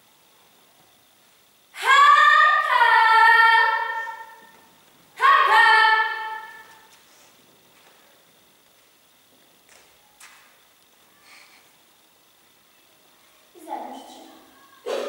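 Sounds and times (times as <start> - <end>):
woman's high drawn-out voice: 5.2 - 6.6, 13.6 - 14.8.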